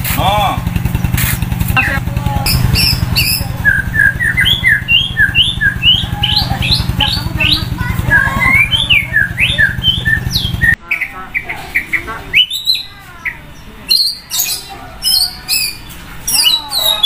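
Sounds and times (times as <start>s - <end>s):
engine idling: 0.0s - 10.8s
bird singing whistled notes: 2.5s - 17.0s.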